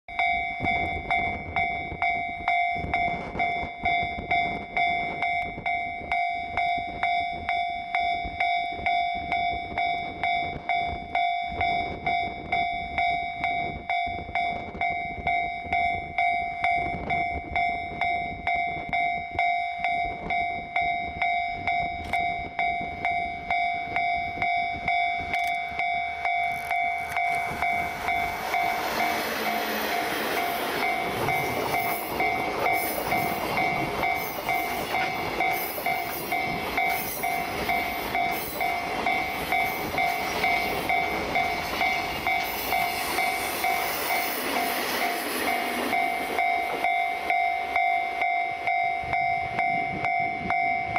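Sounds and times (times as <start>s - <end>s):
pulsing ringing: 0.1s - 50.9s
train wheel and rail noise: 0.1s - 50.9s.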